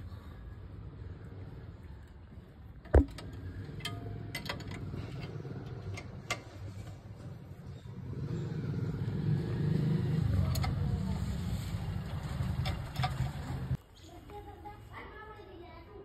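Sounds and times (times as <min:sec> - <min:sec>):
spanner clicking on metal bolts: 0:02.9 - 0:07.0
vehicle engine running: 0:02.9 - 0:13.8.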